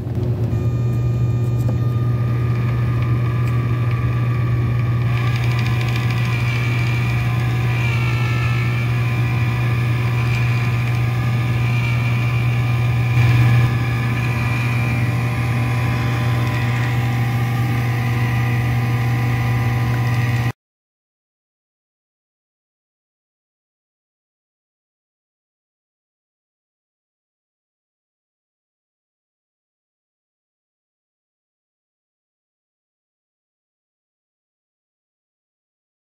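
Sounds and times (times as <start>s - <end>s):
small electric motor humming: 0.5s - 20.5s.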